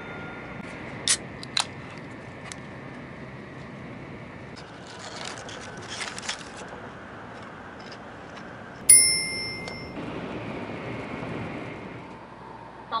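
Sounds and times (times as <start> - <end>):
bright on-board chime: 8.9 - 10.0.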